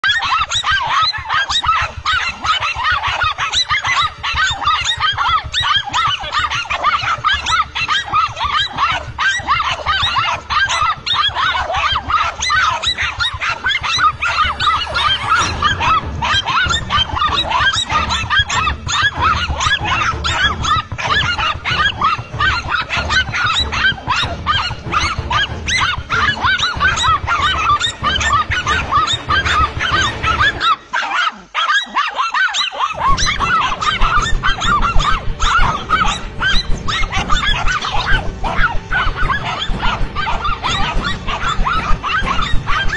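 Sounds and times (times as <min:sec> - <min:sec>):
dogs barking: 0:00.0 - 0:42.9.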